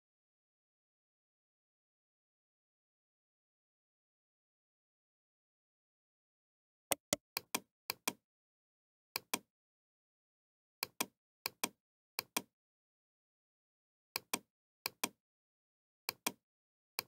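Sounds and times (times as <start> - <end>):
computer mouse double-clicking: 6.9 - 8.2.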